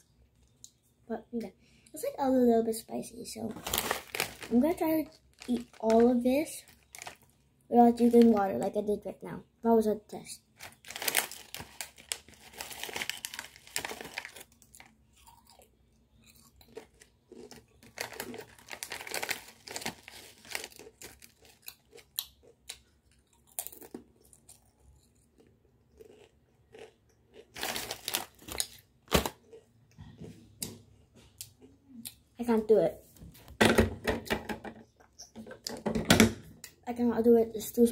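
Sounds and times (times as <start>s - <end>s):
child crunching potato crisps: 3.2s - 8.7s, 10.4s - 29.8s
foil chip bag rustling: 3.5s - 8.5s, 10.6s - 15.0s, 16.7s - 21.6s, 27.6s - 29.4s.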